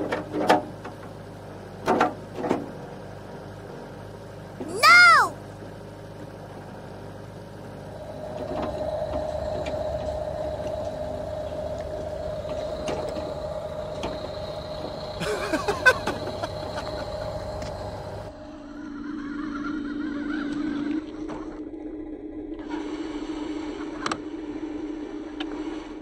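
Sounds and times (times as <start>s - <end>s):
toy excavator motors whining: 8.2s - 21.1s.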